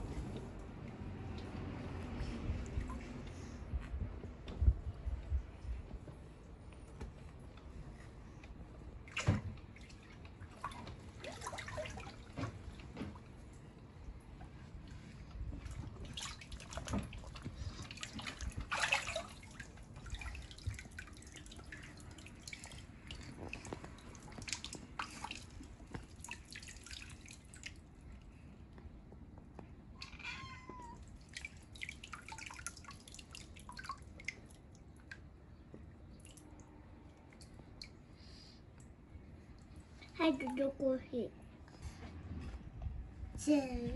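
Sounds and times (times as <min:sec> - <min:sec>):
water splashing and dripping: 0:08.4 - 0:28.4, 0:30.0 - 0:39.0
cat meowing: 0:30.0 - 0:31.1.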